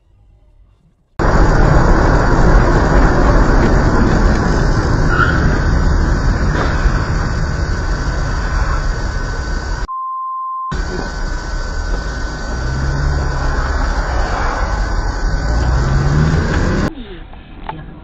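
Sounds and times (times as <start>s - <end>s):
car road and engine noise: 1.2s - 9.9s, 10.7s - 16.9s
censor bleep: 9.9s - 10.8s.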